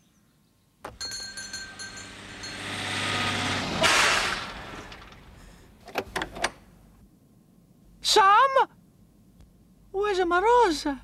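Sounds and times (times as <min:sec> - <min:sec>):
fire engine running: 0:00.9 - 0:05.7.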